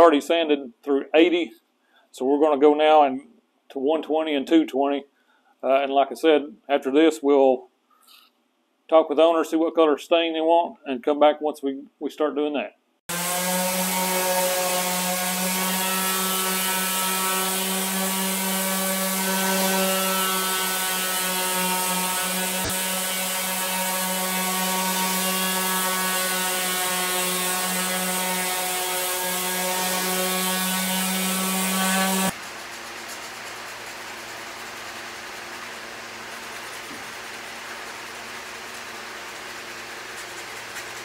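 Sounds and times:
orbital sander sanding wood: 13.1 - 41.0.

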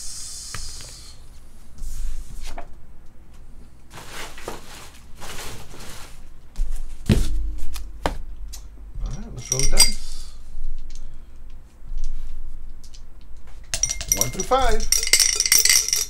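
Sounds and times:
cardboard rustling and scraping: 3.9 - 7.4.

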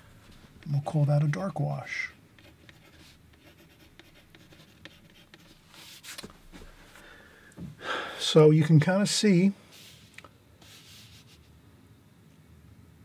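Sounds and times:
pencil scratching on paper: 2.4 - 6.1, 9.8 - 11.4.

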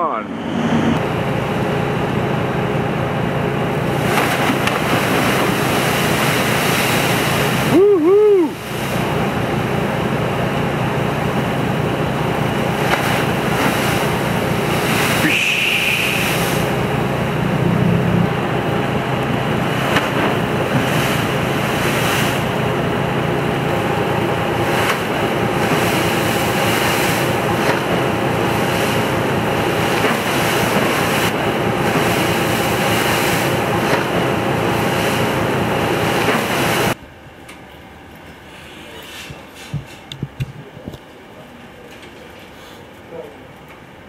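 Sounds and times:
machinery hum: 0.0 - 44.0
sea water splashing along hull: 0.8 - 37.0
wind buffeting microphone: 39.3 - 41.0.

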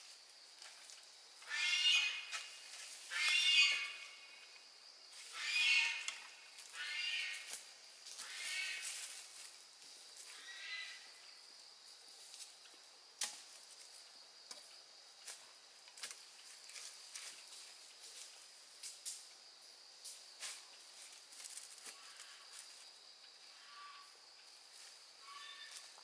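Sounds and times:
animal calling: 1.4 - 2.4, 3.1 - 4.2, 5.3 - 7.5.

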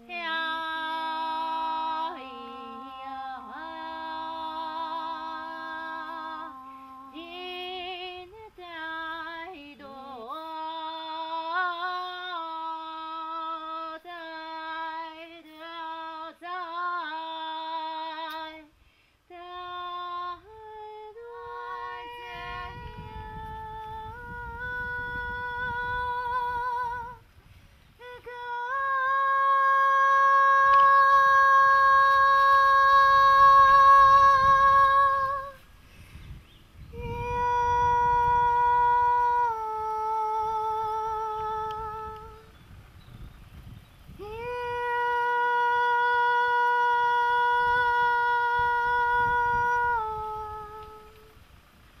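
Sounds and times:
woman singing held notes: 19.3 - 27.2.

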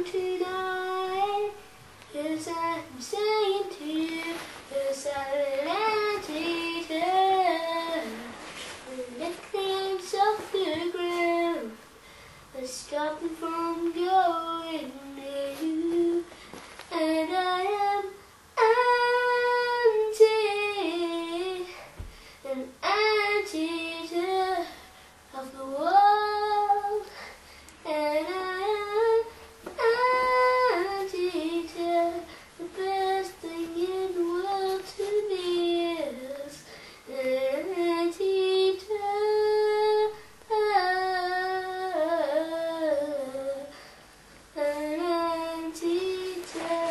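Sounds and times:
child singing: 0.0 - 11.8, 12.6 - 16.3, 16.9 - 27.1, 27.8 - 43.7, 44.5 - 46.9.

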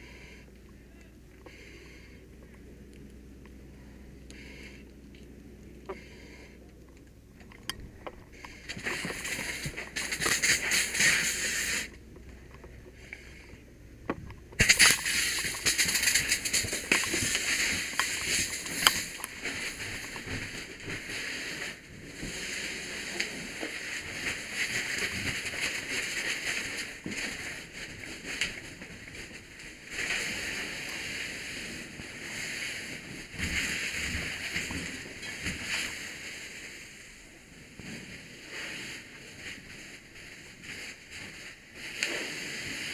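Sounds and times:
fire hose spraying water: 8.8 - 11.9, 14.6 - 20.0.

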